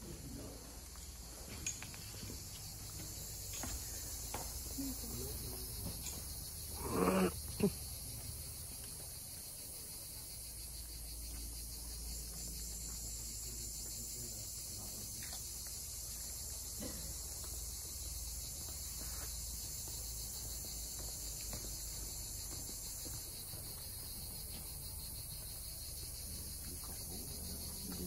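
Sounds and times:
insects chorus: 0.0s - 28.0s.

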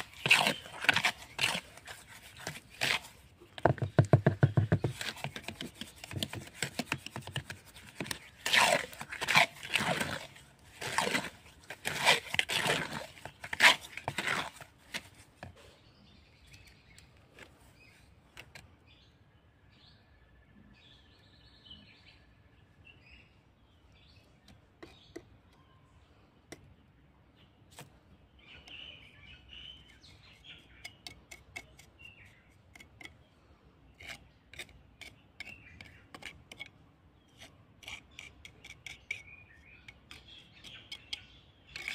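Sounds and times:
trowel scraping grout in bucket: 0.0s - 15.5s, 39.8s - 41.9s
birds chirping faintly: 0.0s - 41.9s.

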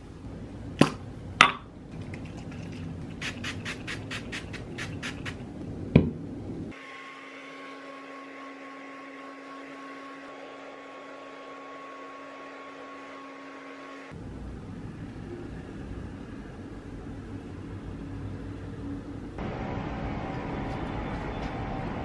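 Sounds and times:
hair dryer running: 6.7s - 14.2s.

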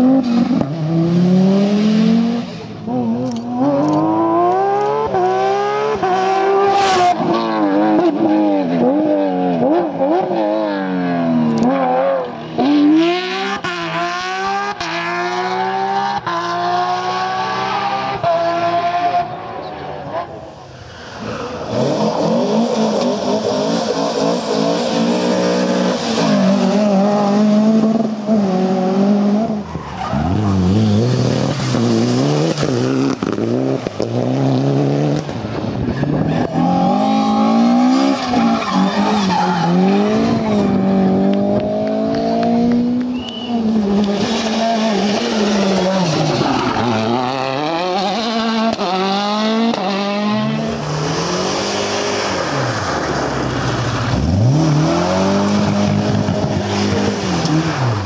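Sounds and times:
rally car engines revving: 0.0s - 58.0s
tyres skidding and squealing: 19.2s - 28.3s, 29.4s - 34.4s, 35.2s - 41.2s, 43.1s - 49.1s, 50.6s - 58.0s.

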